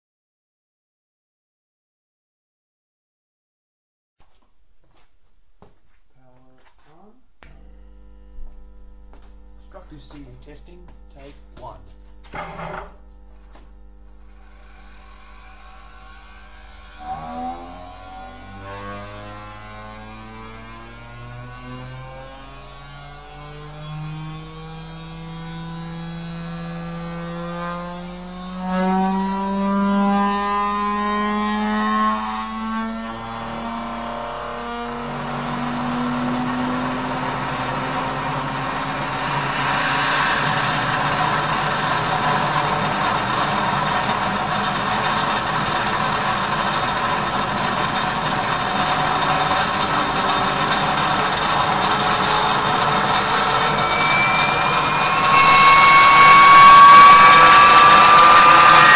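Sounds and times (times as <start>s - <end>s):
vacuum motor whine: 7.5s - 58.9s.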